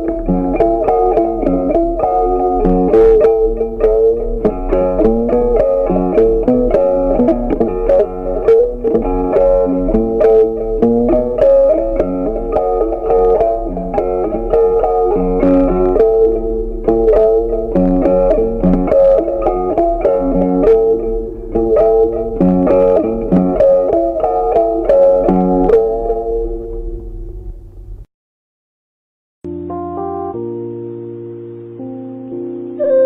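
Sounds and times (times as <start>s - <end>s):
plucked guitar melody: 0.0s - 27.7s, 29.4s - 33.0s
low bass line: 29.4s - 32.7s.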